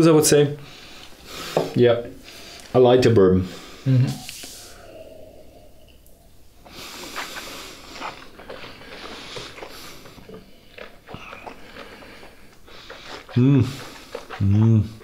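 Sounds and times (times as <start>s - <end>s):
quiet sips and mouth noises: 3.8s - 15.0s.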